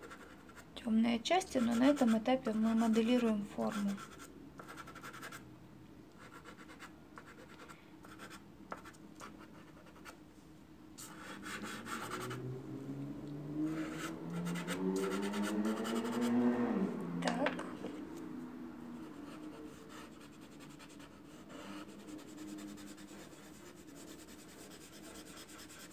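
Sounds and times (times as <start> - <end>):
low steady hum: 0.0 - 25.9
pastel rubbing on rough paper: 19.2 - 25.9.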